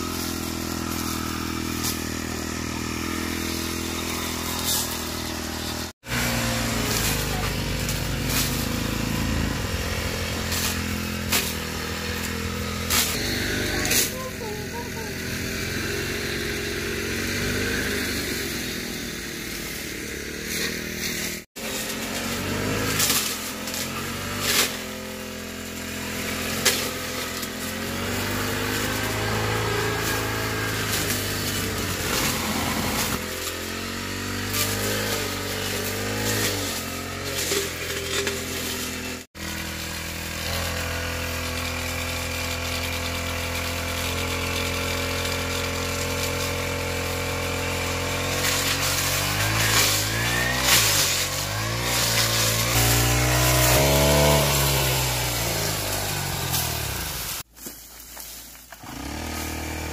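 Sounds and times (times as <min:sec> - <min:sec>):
brush cutter engine revving: 0:00.0 - 0:59.9.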